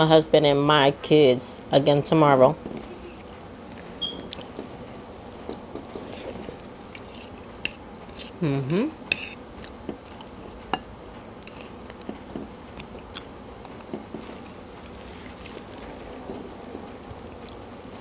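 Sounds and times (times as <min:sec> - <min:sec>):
fork scraping a plate: 0:06.0 - 0:08.4, 0:09.1 - 0:09.4, 0:11.5 - 0:11.8.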